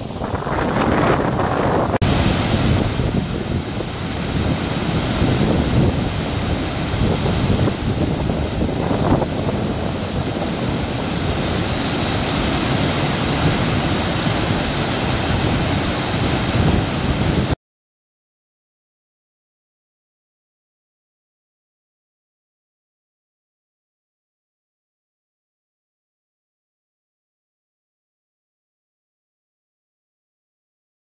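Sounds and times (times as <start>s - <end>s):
waterfall roaring: 0.0s - 17.6s.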